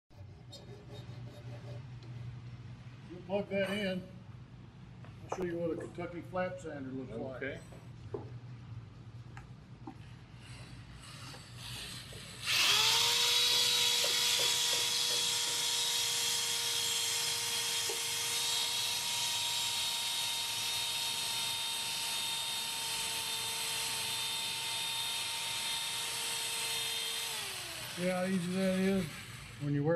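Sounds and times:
electric drill whining: 0:11.0 - 0:29.8
sander strips hissing: 0:25.4 - 0:29.9.

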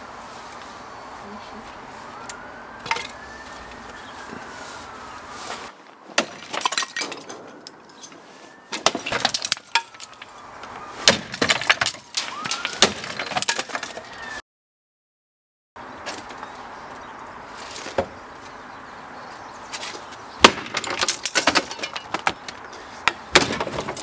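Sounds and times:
clattering debris: 0:02.8 - 0:03.2, 0:06.1 - 0:10.3, 0:11.1 - 0:14.1, 0:20.4 - 0:24.0
metal bat smashing ornaments: 0:02.8 - 0:03.2, 0:08.8 - 0:10.3, 0:11.0 - 0:14.0, 0:20.4 - 0:22.3.

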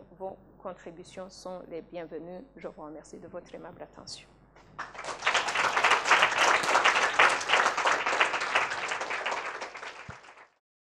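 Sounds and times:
audience applauding: 0:04.8 - 0:10.6.

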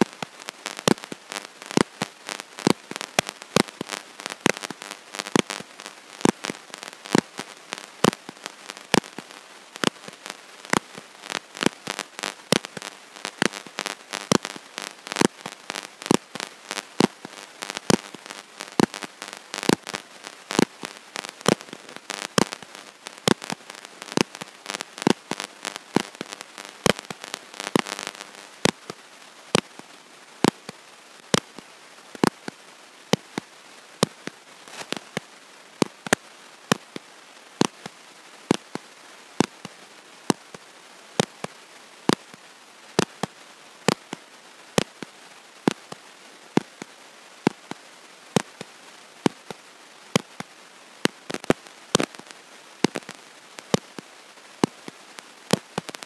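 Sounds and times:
sharp regular clicks: 0:00.0 - 0:29.0
crackling: 0:00.0 - 0:56.0.

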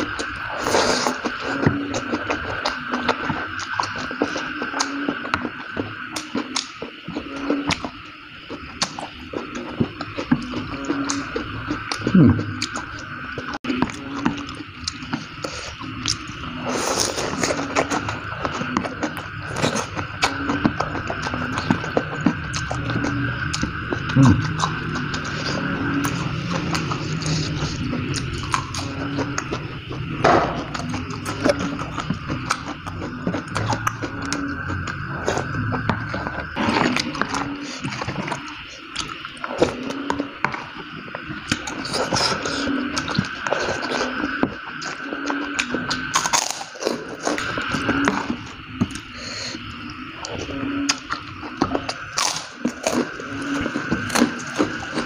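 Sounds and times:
cracker crunching while chewed: 0:41.4 - 0:49.1, 0:50.9 - 0:55.0.

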